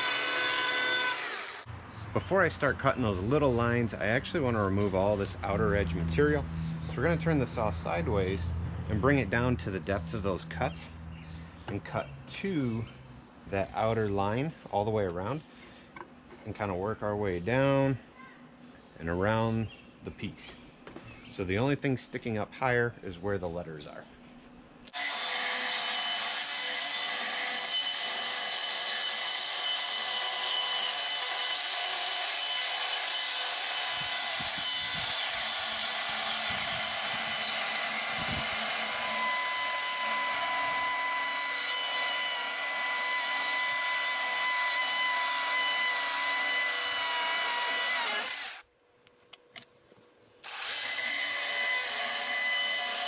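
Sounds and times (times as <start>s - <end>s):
chainsaw cutting wood: 0.0s - 1.7s, 24.9s - 48.6s, 50.4s - 53.0s.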